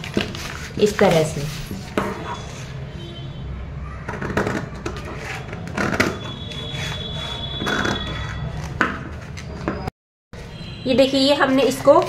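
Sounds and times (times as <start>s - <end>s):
scissors cutting paper: 0.0s - 2.5s, 4.9s - 9.4s.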